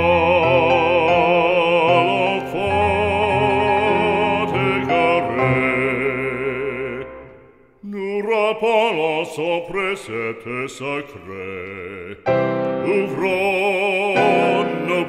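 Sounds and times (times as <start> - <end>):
held accompaniment: 0.0 - 7.5, 12.2 - 15.0
person singing a hymn with vibrato: 0.0 - 15.0.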